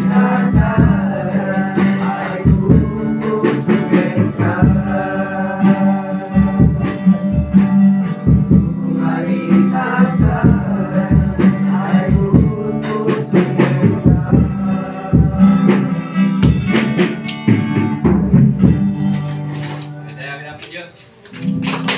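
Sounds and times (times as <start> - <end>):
young voices singing together: 0.0 - 17.9
strummed acoustic guitar: 0.0 - 21.9.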